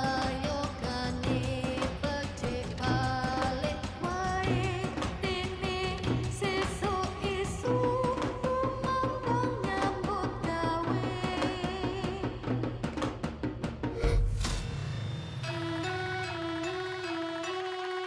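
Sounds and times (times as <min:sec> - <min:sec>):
ornamented sung melody: 0:00.0 - 0:12.4
steady drumming: 0:00.0 - 0:17.8.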